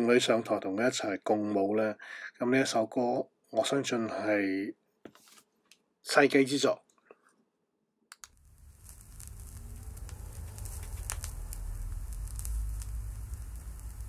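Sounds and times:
stylus soft clicks: 0:08.1 - 0:14.0
vinyl surface crackle and pops: 0:08.2 - 0:14.0
low rumble: 0:08.4 - 0:14.0.

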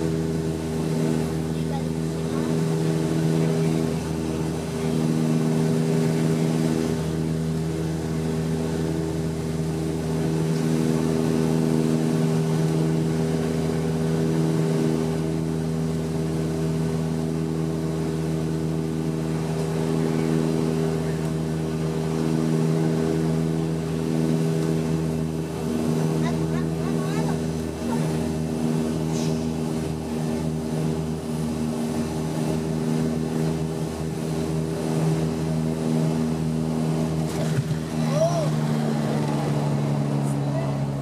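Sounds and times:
propeller plane engine drone: 0:00.0 - 0:41.0.

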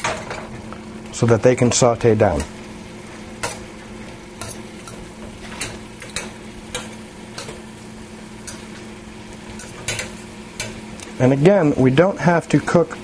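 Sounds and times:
food sizzling in a pan: 0:00.0 - 0:13.0
utensil scraping a pan: 0:04.4 - 0:07.7.

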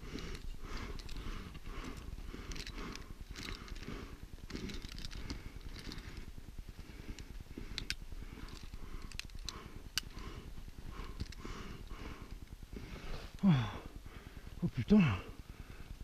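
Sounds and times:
metallic carabiner clicks: 0:00.2 - 0:03.9, 0:04.5 - 0:06.3, 0:07.6 - 0:10.2, 0:11.0 - 0:11.4.

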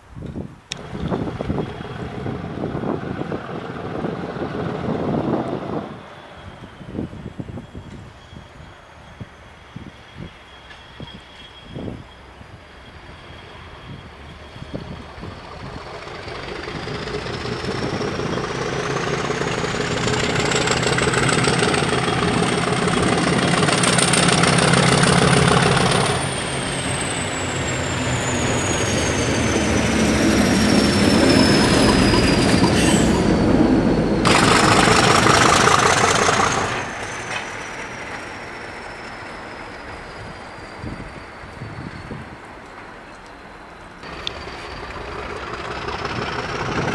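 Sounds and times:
diesel locomotive engine working hard: 0:00.7 - 0:46.9
turbocharger whine: 0:14.7 - 0:37.2, 0:44.0 - 0:46.9.

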